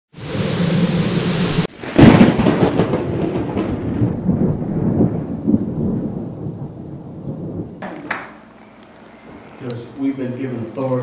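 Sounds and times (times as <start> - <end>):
crackling rumble: 0.2 - 7.8
loud crash: 0.4 - 5.4.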